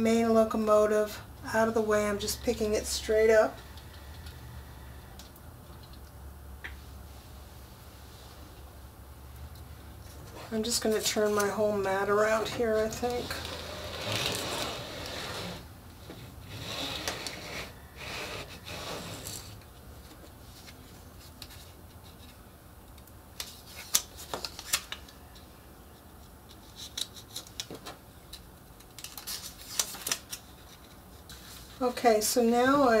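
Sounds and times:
cutting mat scraping on table: 0:12.5 - 0:19.6.

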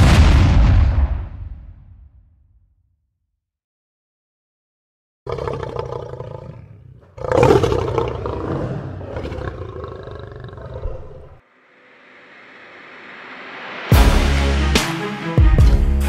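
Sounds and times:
lion roaring: 0:05.3 - 0:11.4.

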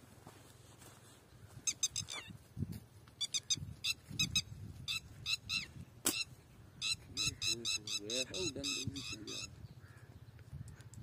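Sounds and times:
soft footfalls on ground: 0:00.0 - 0:03.2
bird squeaky calls: 0:01.6 - 0:02.4, 0:03.2 - 0:10.1.

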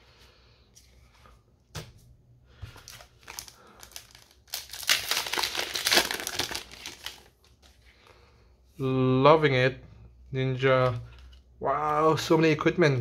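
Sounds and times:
wrapper crinkling and tearing: 0:02.9 - 0:07.8.

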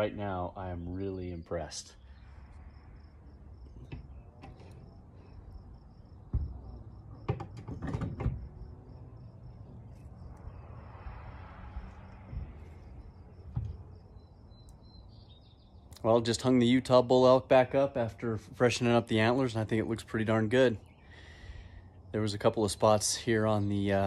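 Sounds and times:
knocks and clunks on wall hanger: 0:07.2 - 0:08.5
faint high pulsing chirp: 0:11.8 - 0:16.2.

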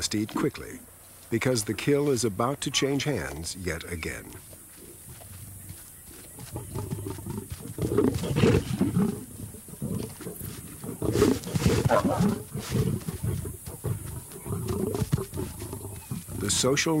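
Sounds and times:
lions snarling and growling: 0:04.3 - 0:17.0.

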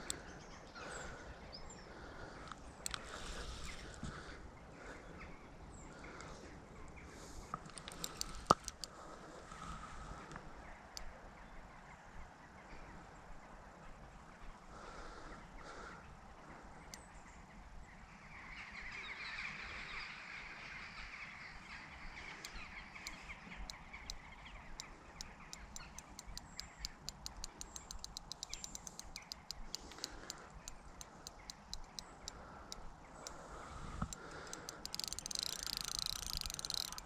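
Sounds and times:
fishing reel ticking: 0:07.7 - 0:09.0, 0:22.3 - 0:37.0.

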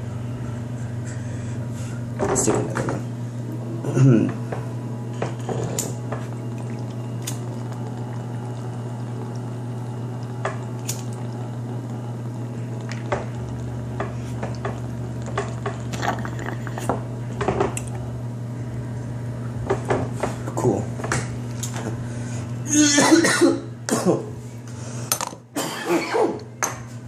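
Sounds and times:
steady low hum: 0:00.0 - 0:27.0
water bubbling in pipe: 0:05.9 - 0:17.2.

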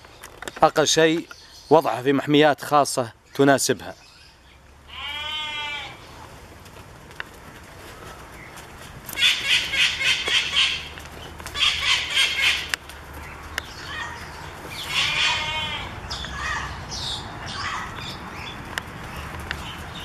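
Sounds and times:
birds calling harsh notes: 0:00.0 - 0:06.4, 0:07.2 - 0:20.0
wavering bird call: 0:09.2 - 0:10.9, 0:11.6 - 0:12.7, 0:14.8 - 0:16.8.

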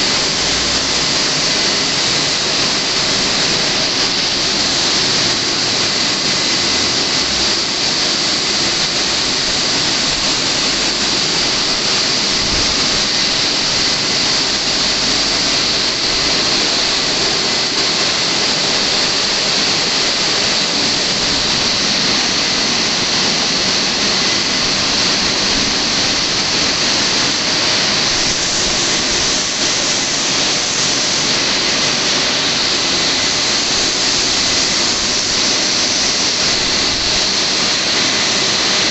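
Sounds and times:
car wash rushing noise: 0:00.0 - 0:38.9.

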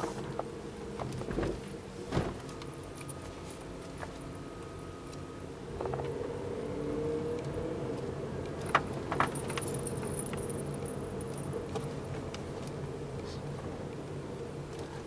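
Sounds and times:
keys jingling in ignition: 0:08.6 - 0:12.0.

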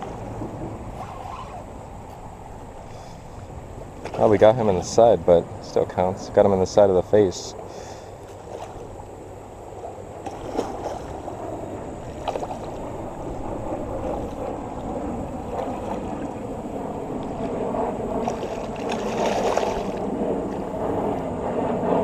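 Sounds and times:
sharp water slaps: 0:10.2 - 0:11.2, 0:12.0 - 0:12.8, 0:18.2 - 0:20.6
fish thrashing and splashing: 0:18.2 - 0:20.0.

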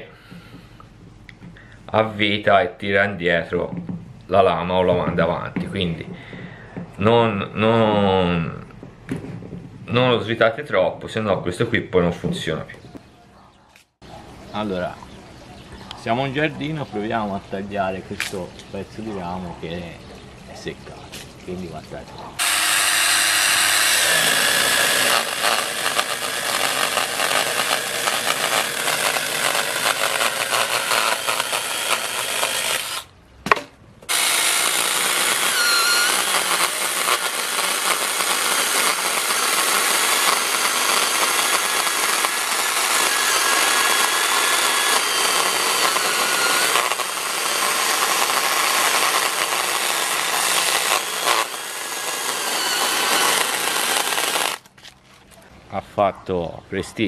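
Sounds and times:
chainsaw cutting wood: 0:22.4 - 0:33.1, 0:34.1 - 0:54.8.

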